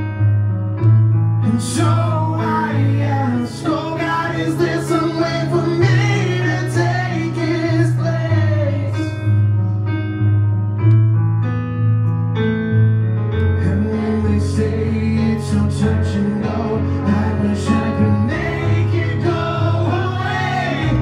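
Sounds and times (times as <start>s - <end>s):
man singing: 1.4s - 9.4s, 13.6s - 21.0s.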